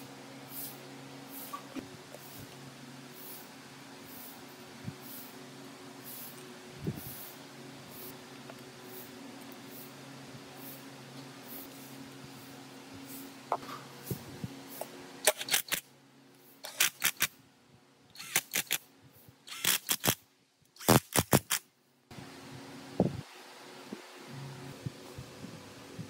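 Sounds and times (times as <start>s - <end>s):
low steady hum: 21.7s - 26.0s.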